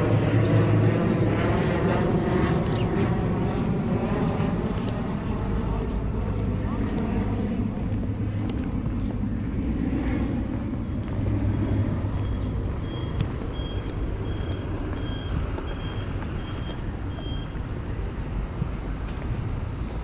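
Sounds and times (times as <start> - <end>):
street traffic rumble: 0.0 - 20.0
high electronic beeps: 12.2 - 17.6.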